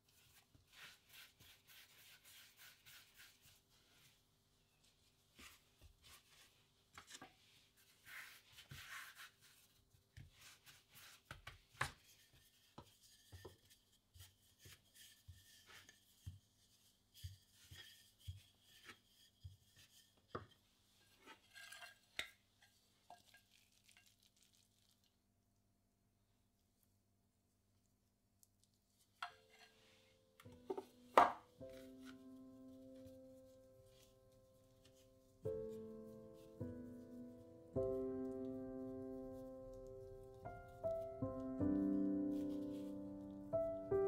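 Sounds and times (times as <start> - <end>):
rolling pin rubbing on dough: 0.0 - 4.2, 5.3 - 6.6, 7.4 - 21.7, 39.7 - 43.0
rolling pin knocking on board: 30.6 - 31.5.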